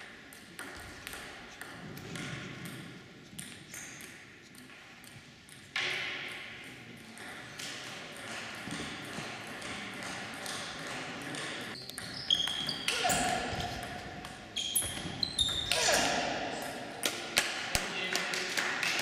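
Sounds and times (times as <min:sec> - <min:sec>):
table tennis balls clicking: 0:06.7 - 0:15.8.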